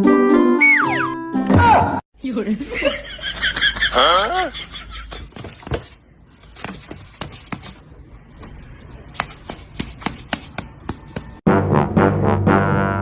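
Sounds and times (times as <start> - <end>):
cat pawing taps and scuffs: 5.3 - 11.3.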